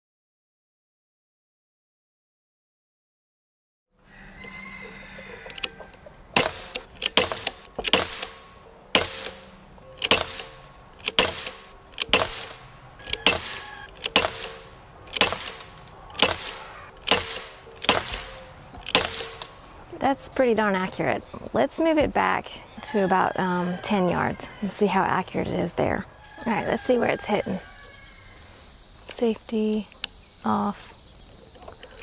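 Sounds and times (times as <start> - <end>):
bb pistol shots popping: 6.3 - 19.6.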